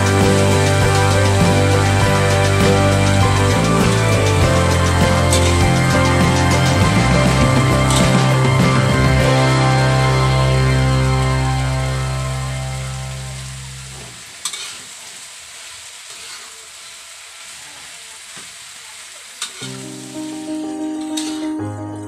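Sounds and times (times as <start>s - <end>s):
background music: 0.0s - 14.0s, 19.6s - 22.0s
vegetables sizzling in a wok: 0.0s - 22.0s.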